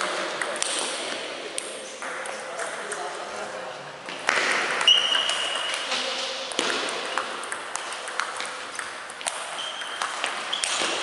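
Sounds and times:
table tennis ball clicking off paddles: 0:04.2 - 0:11.0
short high squeak: 0:04.9 - 0:05.6.

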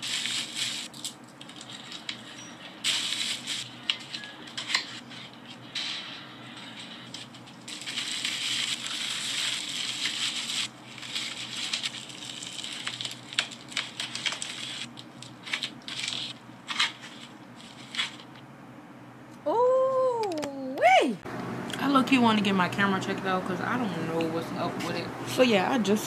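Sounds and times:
plastic mailer bag crinkling: 0:00.0 - 0:05.4, 0:06.6 - 0:18.3.

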